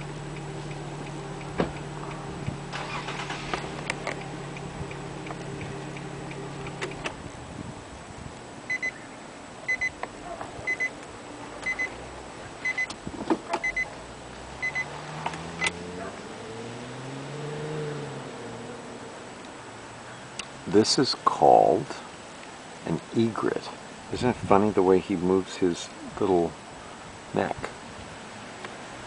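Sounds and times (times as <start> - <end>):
vehicle engine running: 0.0 - 7.5, 13.7 - 18.9
electronic double beep: 8.7 - 9.0, 11.7 - 11.9, 14.6 - 14.9
vehicle passing: 13.9 - 20.1.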